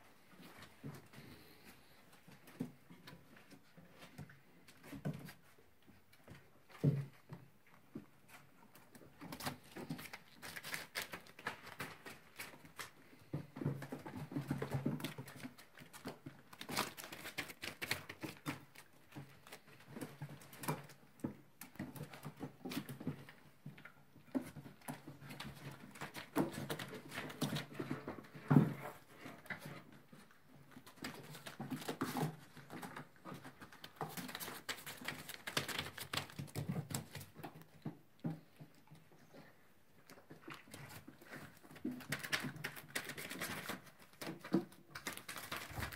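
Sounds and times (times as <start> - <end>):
puppy paws pattering on boards: 0.2 - 45.9
paper crackling: 9.5 - 12.9, 33.8 - 37.2, 42.0 - 45.9.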